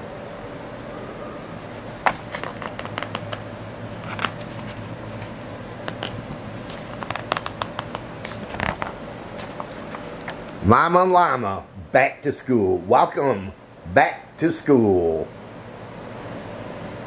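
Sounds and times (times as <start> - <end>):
low hum: 0.0 - 10.9
book pages turning: 1.6 - 3.4, 4.0 - 10.4.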